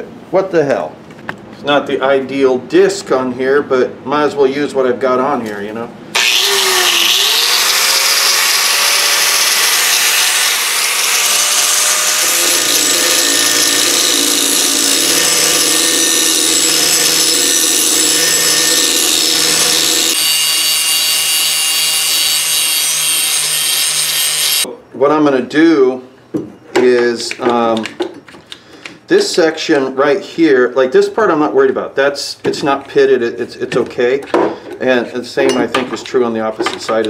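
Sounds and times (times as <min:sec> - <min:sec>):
angle grinder grinding metal: 0:06.2 - 0:24.7.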